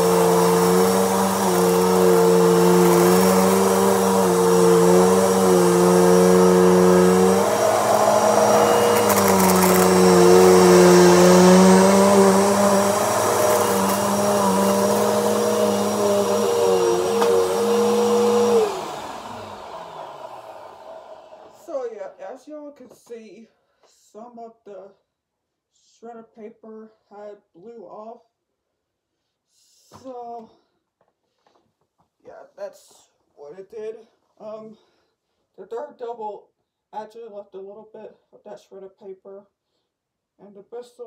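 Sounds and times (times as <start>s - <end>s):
vacuum motor winding down: 0.0s - 21.8s
vacuum cleaner running: 0.0s - 21.9s.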